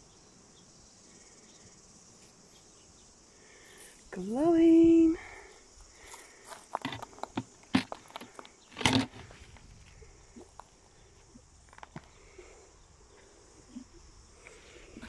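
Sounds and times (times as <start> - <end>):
footsteps crunching on shells: 5.9 - 10.8.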